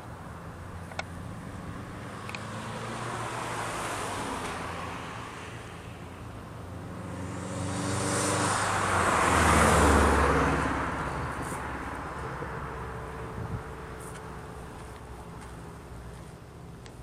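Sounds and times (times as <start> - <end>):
car passing by: 1.2 - 14.4.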